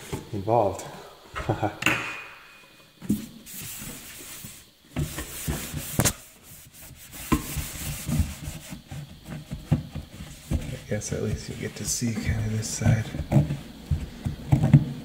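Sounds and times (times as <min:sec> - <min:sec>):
cloth rubbing steel sink: 0:03.2 - 0:14.8.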